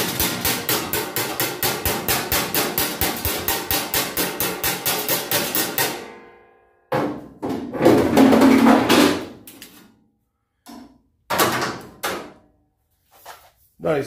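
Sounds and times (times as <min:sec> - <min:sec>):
knocks on metal: 0:00.0 - 0:06.0
hammered steel strip ringing: 0:00.0 - 0:06.6.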